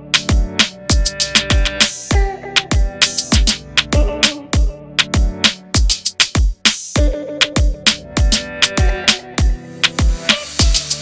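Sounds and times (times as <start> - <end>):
deep kick drums: 0.2 - 10.8
crisp percussion strokes: 5.0 - 11.0.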